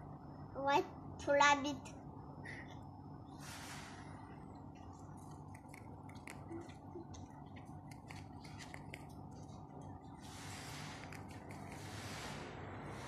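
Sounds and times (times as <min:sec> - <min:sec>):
rabbit chewing leaf: 0:03.4 - 0:13.0.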